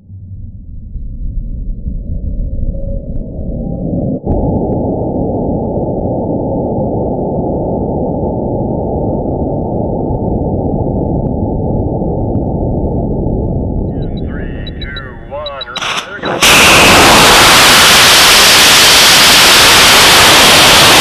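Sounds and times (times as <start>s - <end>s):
rocket launch roar: 14.3s - 21.0s.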